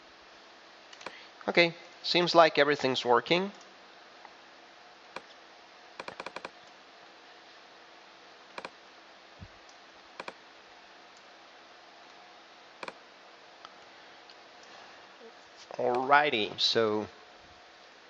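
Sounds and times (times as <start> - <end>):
faint room hum: 0.0 - 18.0
mouse and keyboard clicks: 6.0 - 6.6.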